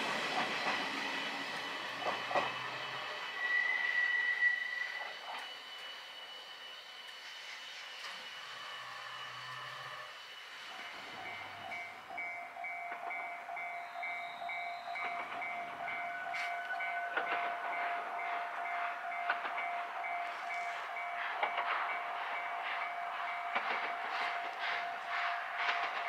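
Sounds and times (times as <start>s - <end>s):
steam train rumble and clatter: 0.0s - 26.0s
level crossing alarm chiming: 11.2s - 25.2s.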